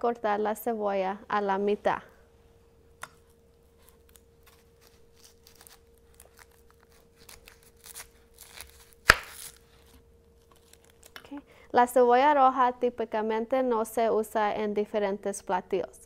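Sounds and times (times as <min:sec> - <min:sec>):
knife cutting onion: 0:03.0 - 0:10.0
onion skin peeling crackling: 0:03.0 - 0:11.3.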